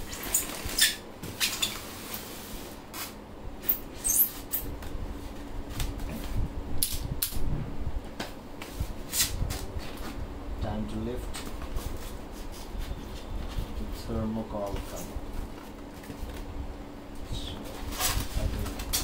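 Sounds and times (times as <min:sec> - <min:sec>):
foam squeaking and scraping: 0:00.0 - 0:02.0, 0:03.9 - 0:04.6.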